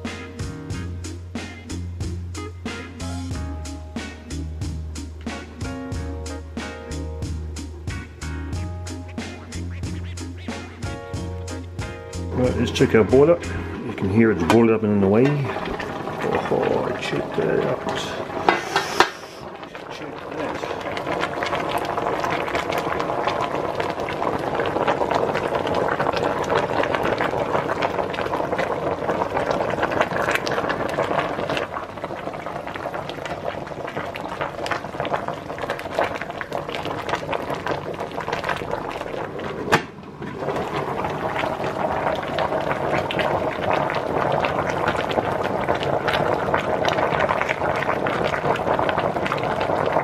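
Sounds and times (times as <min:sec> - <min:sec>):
pot boiling with bubbling: 0:10.8 - 0:50.0.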